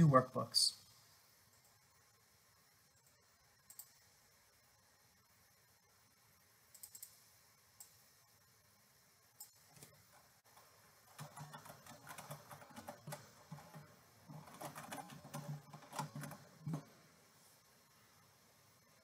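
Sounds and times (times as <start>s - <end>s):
computer keyboard typing: 9.4s - 17.0s.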